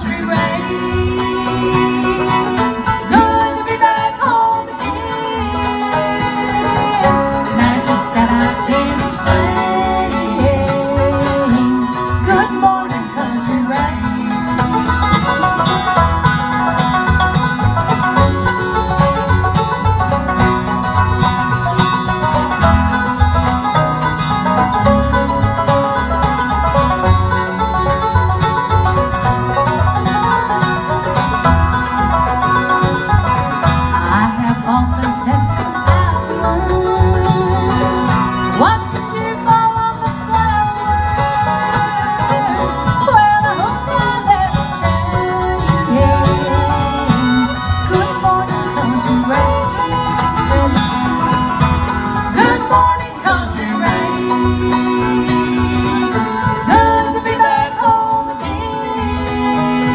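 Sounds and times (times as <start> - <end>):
acoustic guitar: 0.0 - 59.9
banjo: 0.0 - 59.9
fiddle: 0.0 - 59.9
mandolin: 0.0 - 59.9
upright bass: 0.0 - 59.9.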